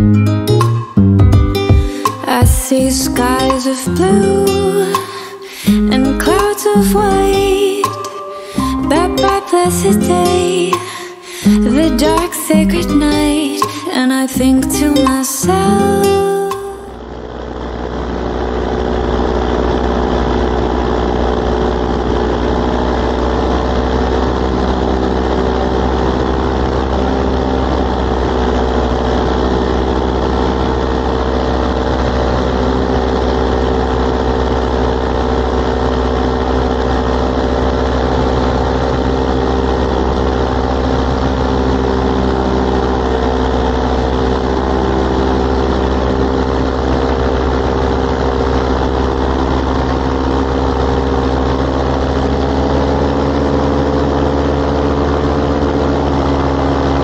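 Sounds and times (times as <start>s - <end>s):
electric motor and propeller drone: 17.0s - 57.0s.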